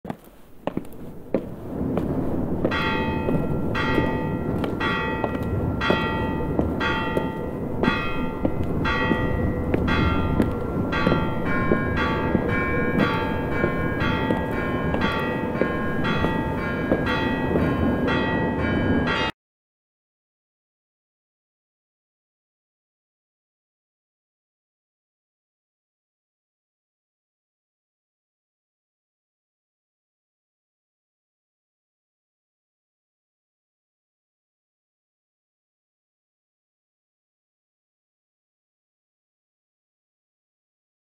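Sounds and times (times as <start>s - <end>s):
church bells ringing: 2.5s - 19.3s.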